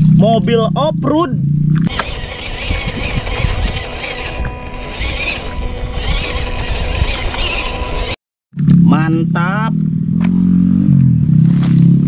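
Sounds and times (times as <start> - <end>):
electric motor whine: 1.9 - 8.2.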